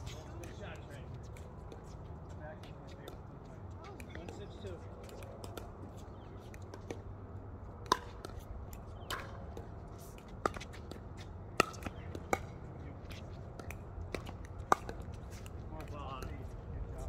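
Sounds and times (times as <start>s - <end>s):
paddles hitting plastic ball: 7.8s - 16.5s
ball bouncing on hard court: 11.6s - 16.4s.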